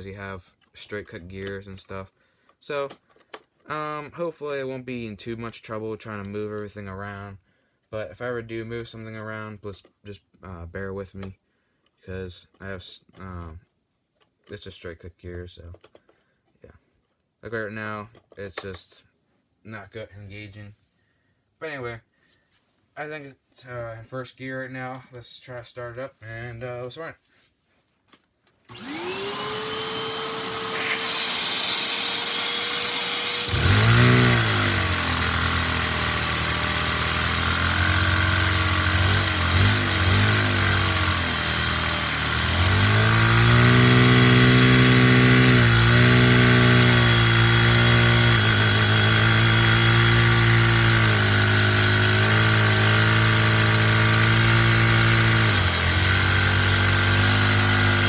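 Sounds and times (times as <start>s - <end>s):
vacuum cleaner motor whine: 28.7s - 49.5s
small toy engine running: 28.7s - 58.0s.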